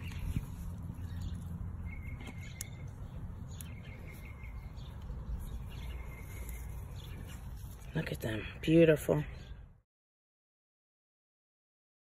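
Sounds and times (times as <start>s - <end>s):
faint bird chirping: 0.0s - 8.5s
low outdoor rumble: 0.0s - 9.8s.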